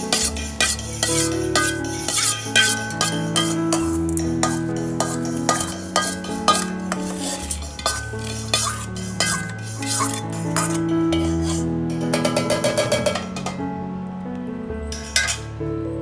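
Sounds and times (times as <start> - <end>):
spoon scraping steel pot: 0.0 - 13.6, 15.0 - 15.4
background music with held notes: 0.0 - 16.0.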